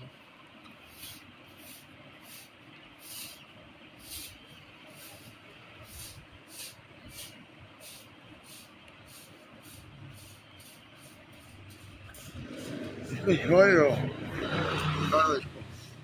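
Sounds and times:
bird panting with hissing breaths: 0:00.9 - 0:13.0.

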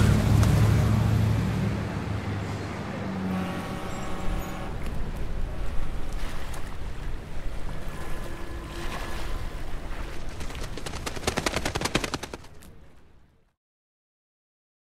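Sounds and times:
wind rumble: 0:03.9 - 0:12.8
doves wings flapping: 0:09.9 - 0:13.0.

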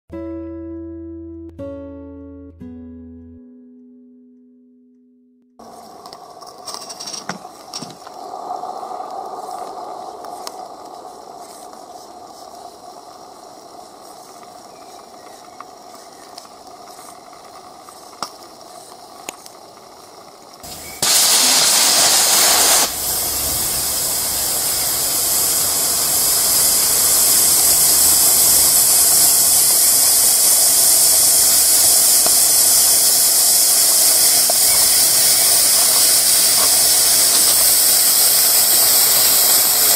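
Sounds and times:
steam locomotive hissing: 0:05.6 - 0:39.9
faint clicks: 0:06.0 - 0:20.8.

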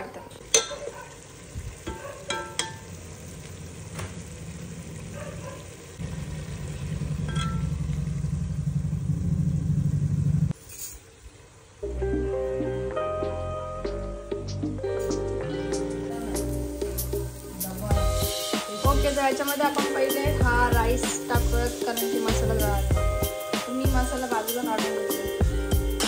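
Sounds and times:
gravy sizzling: 0:00.0 - 0:26.0
low rumble: 0:06.0 - 0:10.5
ladle scraping steel pot: 0:07.2 - 0:07.8.

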